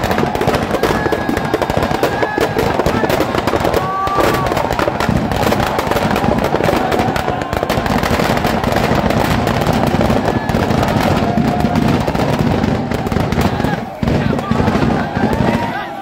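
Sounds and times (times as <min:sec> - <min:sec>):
firecrackers crackling bangs: 0:00.0 - 0:16.0.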